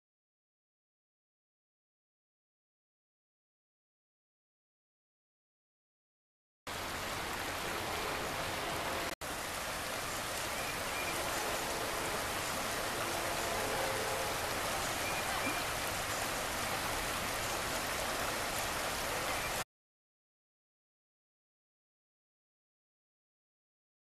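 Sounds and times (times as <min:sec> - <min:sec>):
water rushing over rocks: 0:06.7 - 0:19.6.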